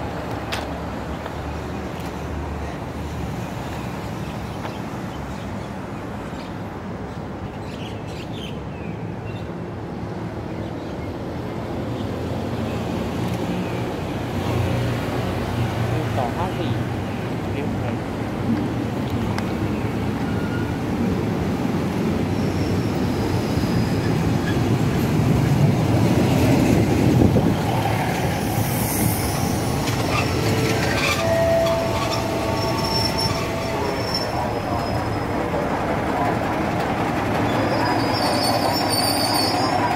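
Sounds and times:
diesel train passing: 9.0s - 39.9s
wheel squeal on rails: 20.2s - 20.8s, 28.3s - 35.2s, 37.3s - 39.9s.

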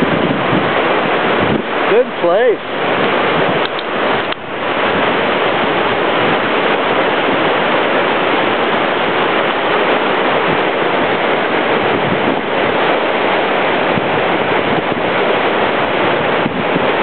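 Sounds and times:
river rapids rushing: 0.0s - 17.0s.

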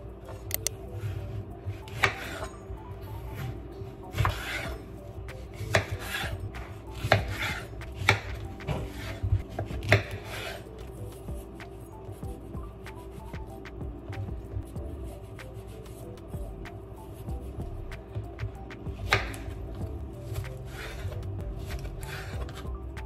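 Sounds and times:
knife rasping through fruit: 5.6s - 11.5s, 20.2s - 22.8s.

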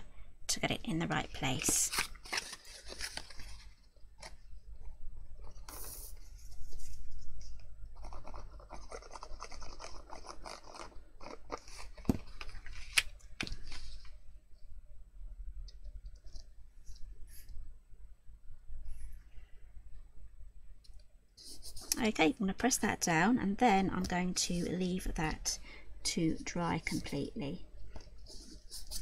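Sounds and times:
paper rustling: 1.3s - 4.4s, 5.4s - 14.2s, 27.9s - 29.0s.

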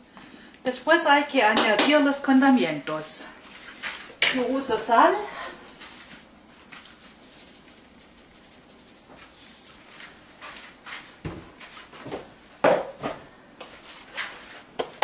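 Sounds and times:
faint hiss: 7.0s - 10.3s.

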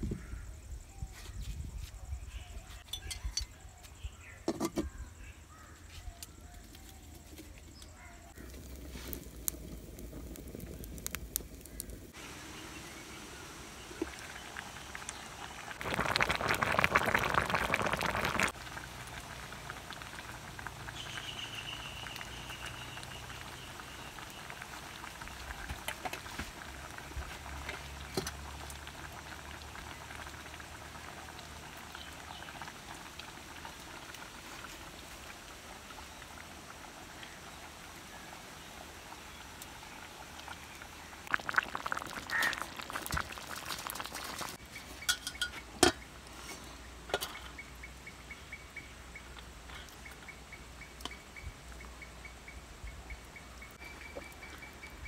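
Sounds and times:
pot and lid clinks: 2.9s - 3.5s, 45.0s - 46.0s
curry bubbling in pot: 8.3s - 46.1s.

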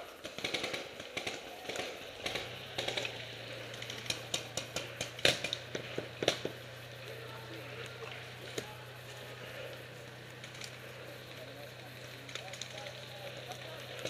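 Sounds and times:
low steady hum: 0.0s - 14.0s
sharp snaps: 0.2s - 7.2s.

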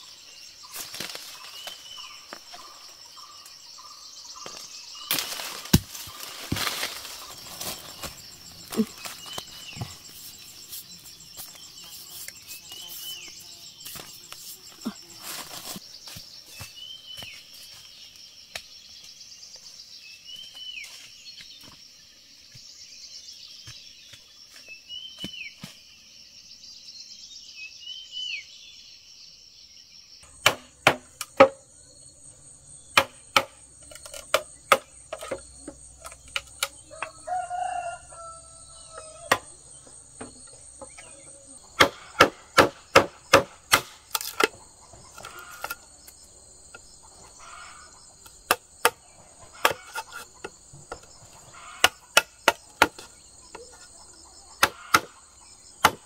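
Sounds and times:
insects droning: 0.0s - 56.0s
rooster crowing: 36.8s - 39.4s.

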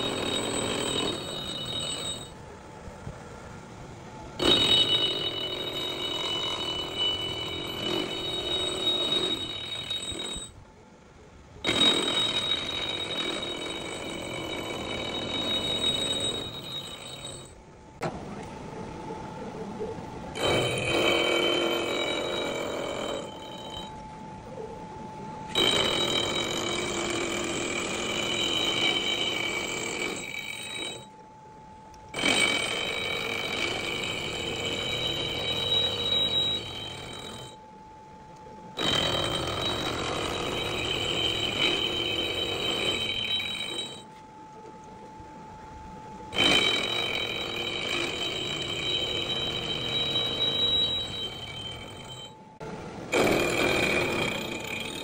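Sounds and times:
milling cutter squealing on steel: 0.0s - 2.4s, 4.4s - 10.7s, 11.6s - 17.6s, 20.4s - 24.0s, 25.4s - 31.2s, 32.1s - 37.6s, 38.8s - 44.2s, 46.3s - 52.5s, 53.1s - 55.0s
spindle whine: 0.0s - 55.0s.

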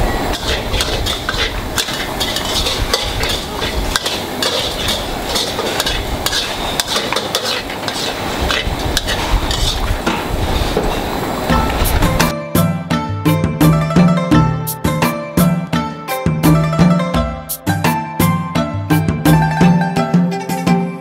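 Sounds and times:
metal ladle clinking against pot: 0.3s - 10.3s
soup bubbling: 0.4s - 11.4s.

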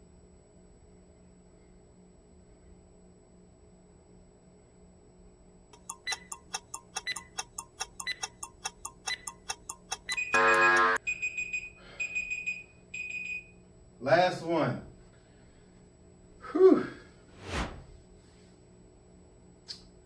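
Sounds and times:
short high beeps: 5.8s - 11.0s
interval timer ticking: 5.8s - 11.6s
loud buzzer: 10.1s - 11.0s.

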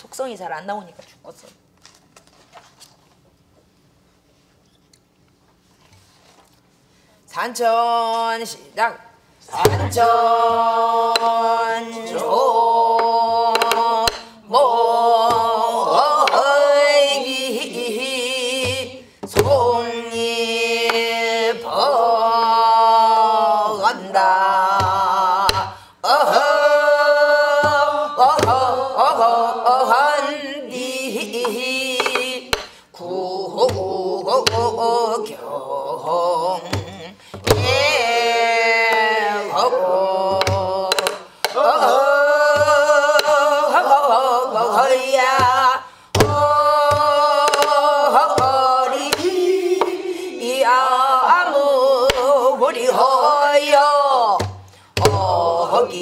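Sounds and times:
barrel drum strokes: 9.5s - 11.4s
woman singing folk song: 23.8s - 56.0s.

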